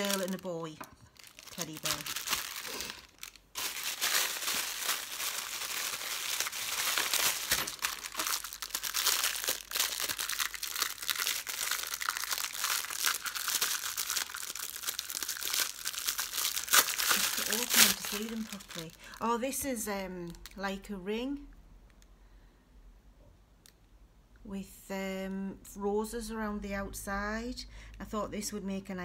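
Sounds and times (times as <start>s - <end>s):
plastic packaging crinkling: 0.0s - 19.3s.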